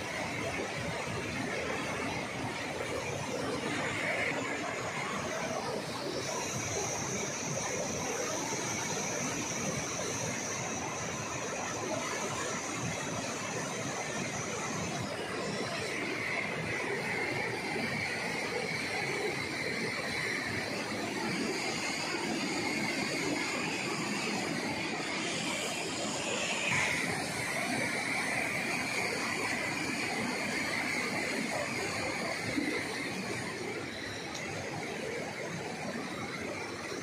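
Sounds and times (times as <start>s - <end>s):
river rapids roaring: 12.8s - 37.0s.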